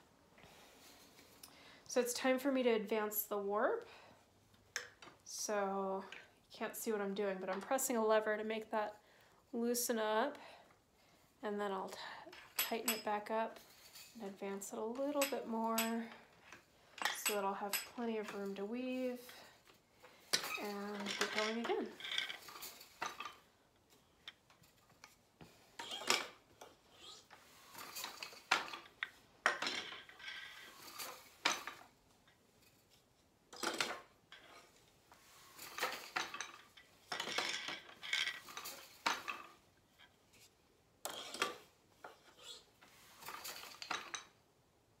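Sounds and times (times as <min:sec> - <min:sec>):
wooden loom clicking and clacking: 0:20.3 - 0:23.4, 0:25.8 - 0:27.1, 0:35.6 - 0:39.5.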